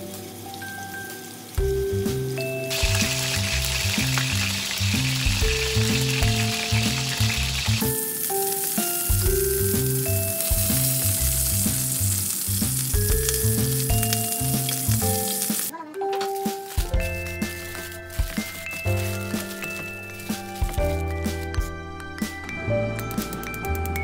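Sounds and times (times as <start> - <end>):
steak sizzling in a frying pan: 0.0 - 15.7.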